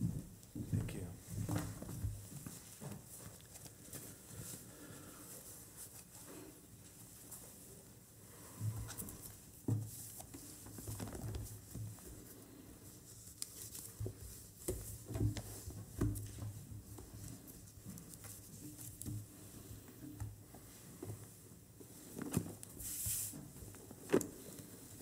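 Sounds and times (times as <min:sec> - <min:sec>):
paper rustle: 0:13.0 - 0:15.0.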